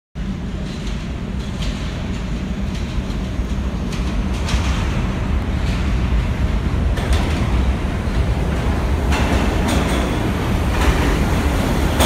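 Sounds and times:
subway train rumbling: 0.2 - 12.0
wheels clacking on rails: 0.2 - 12.0.

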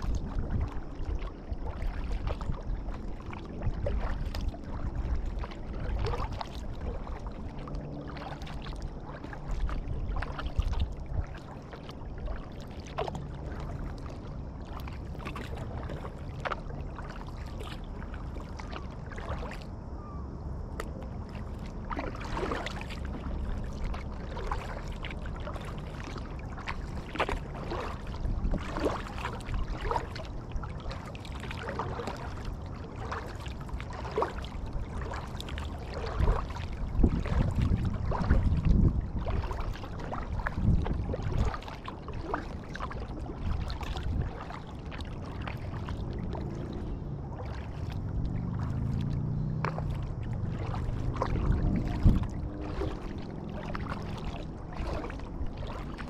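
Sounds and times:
paddle splashing through water: 0.0 - 56.0
low rumble: 43.1 - 56.0.

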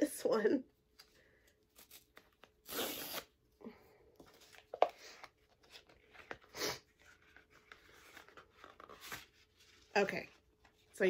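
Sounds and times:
paper ripping: 1.8 - 3.3
paper rustling: 5.5 - 10.9.

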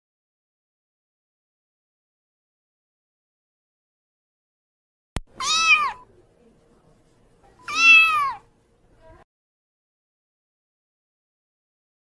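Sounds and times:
kitten meowing: 5.3 - 6.0, 7.6 - 8.4.

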